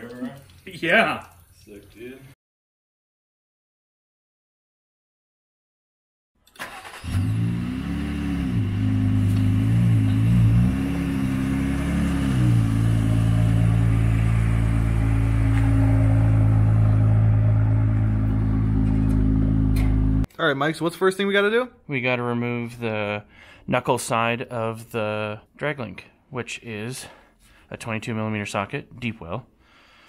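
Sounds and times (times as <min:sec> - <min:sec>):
car engine revving and idling: 0:06.8 - 0:20.3.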